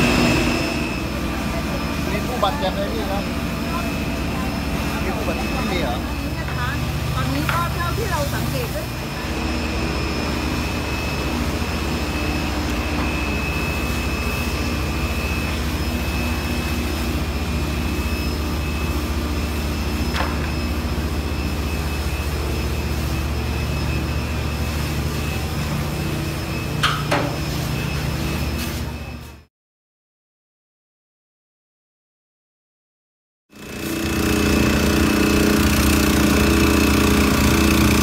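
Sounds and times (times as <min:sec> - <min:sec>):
rushing noise: 0:00.0 - 0:05.5
large engine running: 0:00.0 - 0:29.5, 0:33.5 - 0:38.0
thin high whine: 0:00.0 - 0:29.5.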